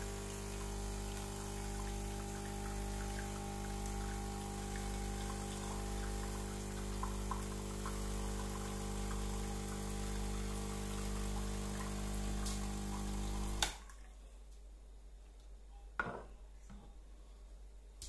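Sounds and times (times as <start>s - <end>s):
espresso machine pump humming: 0.0s - 13.7s
liquid running into a glass: 0.0s - 13.7s.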